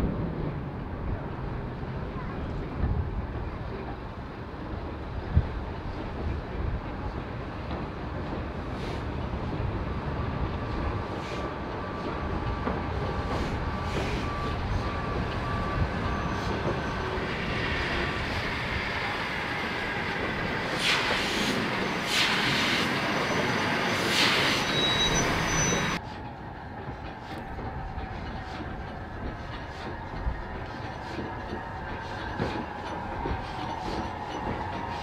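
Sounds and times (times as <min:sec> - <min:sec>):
steam train rumbling: 0:00.0 - 0:35.0
loud steam hissing bursts: 0:20.6 - 0:25.9.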